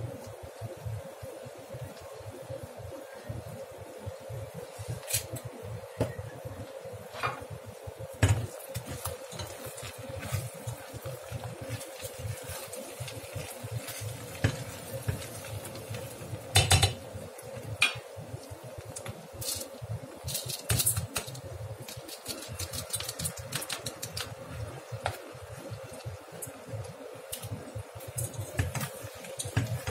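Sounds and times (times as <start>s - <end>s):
faint steady hum: 0.0s - 29.9s
hands mixing vegetables in a pot: 7.4s - 29.9s.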